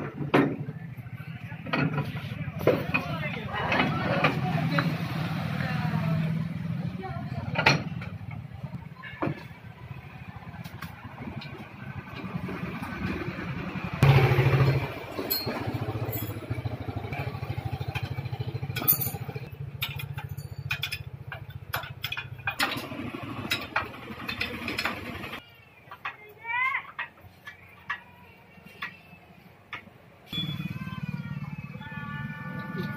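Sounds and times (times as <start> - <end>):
metal clinks from hand tools: 15.1 - 16.6, 18.8 - 22.2.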